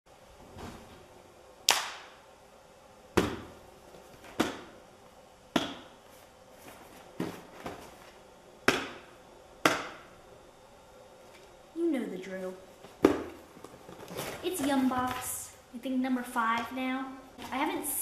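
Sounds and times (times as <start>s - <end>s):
hand slaps on cardboard box: 5.6s - 5.9s.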